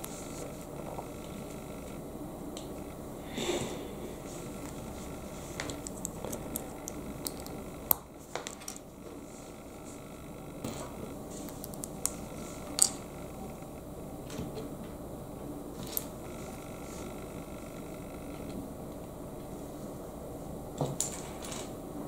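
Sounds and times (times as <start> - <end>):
faint room hum: 0.0 - 22.0
plastic bricks clicking: 11.6 - 13.0.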